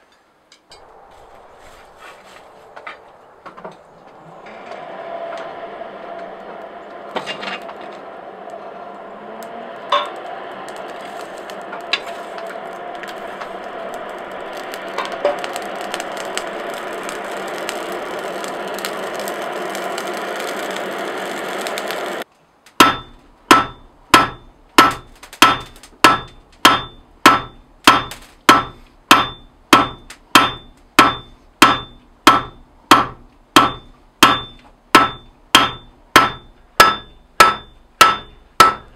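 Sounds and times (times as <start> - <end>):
fire crackling: 0.4 - 38.9
air blast through forge fire: 0.7 - 38.9
hammer striking steel on anvil: 22.8 - 38.9.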